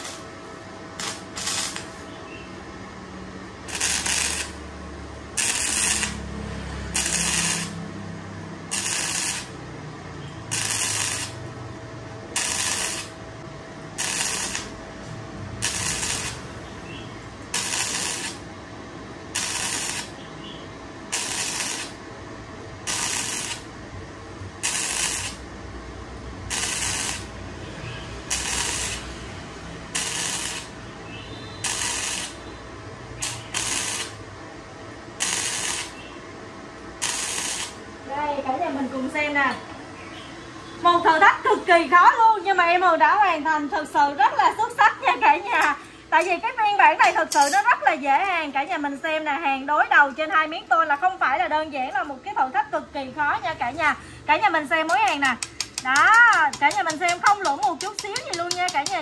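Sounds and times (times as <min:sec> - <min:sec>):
welding arc sizzling: 0:00.0 - 0:02.2, 0:03.5 - 0:13.2, 0:13.8 - 0:18.5, 0:19.1 - 0:22.1, 0:22.8 - 0:23.8, 0:24.4 - 0:34.4, 0:35.2 - 0:36.2, 0:36.9 - 0:37.9, 0:53.5 - 0:59.0.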